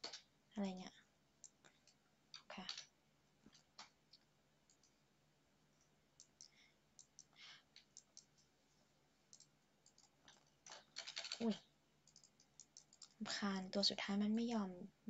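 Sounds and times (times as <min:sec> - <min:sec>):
computer mouse clicks: 0:01.4 - 0:02.8, 0:03.6 - 0:05.0, 0:06.2 - 0:08.5, 0:09.3 - 0:13.2.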